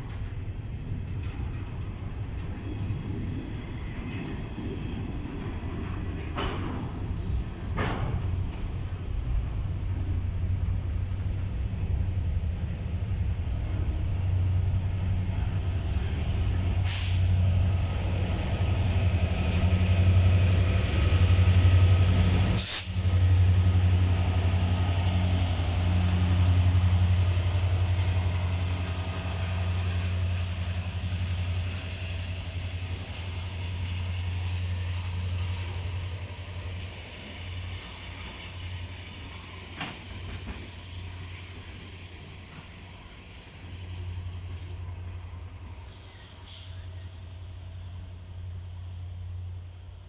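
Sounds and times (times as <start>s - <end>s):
train wheels rumbling on rail: 0.0s - 50.0s
high hiss: 13.7s - 50.0s.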